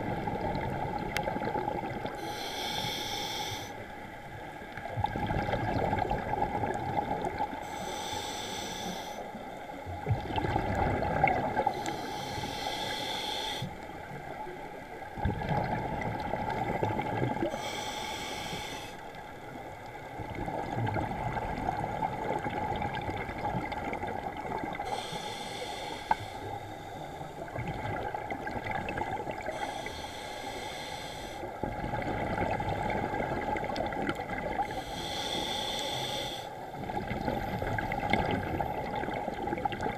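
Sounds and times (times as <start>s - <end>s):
hissing regulator inhalation: 2.2s - 3.7s, 7.7s - 9.2s, 11.7s - 13.7s, 17.5s - 19.0s, 24.9s - 26.6s, 29.5s - 31.5s, 34.7s - 36.6s
bubbling exhaled air: 10.0s - 13.6s.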